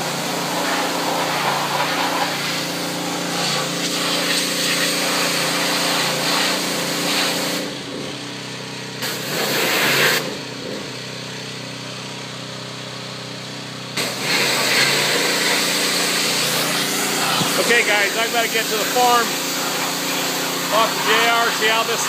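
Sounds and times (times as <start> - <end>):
high-pressure water spray hiss: 0.0 - 7.7, 9.0 - 10.4, 14.0 - 22.0
pressure washer engine: 0.0 - 22.0.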